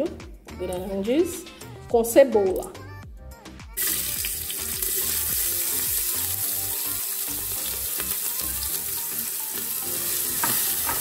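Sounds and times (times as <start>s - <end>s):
garlic and onion sizzling in oil: 3.8s - 11.0s.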